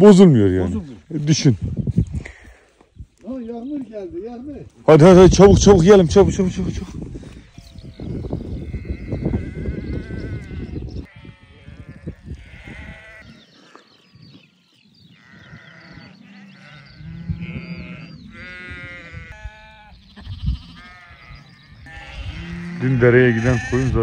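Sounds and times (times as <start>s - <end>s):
flock of sheep bleating: 7.6s - 13.5s, 14.4s - 24.0s.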